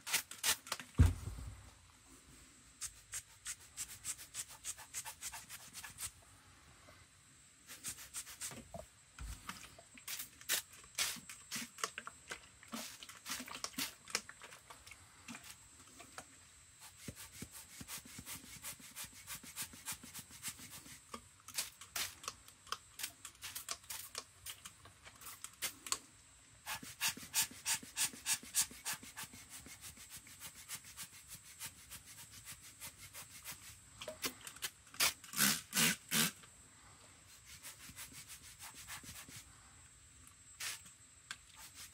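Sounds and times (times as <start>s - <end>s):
spray bottle squirting water: 0.0s - 0.8s, 10.0s - 12.0s, 12.7s - 14.3s, 16.9s - 22.3s, 23.0s - 25.9s, 26.7s - 33.7s, 34.6s - 36.4s, 40.6s - 40.9s
rubber air-blower bulb squeezed: 35.0s - 36.4s.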